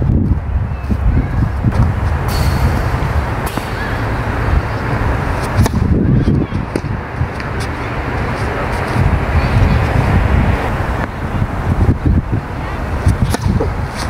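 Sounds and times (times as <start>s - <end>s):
wind buffeting microphone: 0.0s - 14.0s
racquet hitting tennis ball: 1.7s - 9.1s, 13.0s - 14.0s.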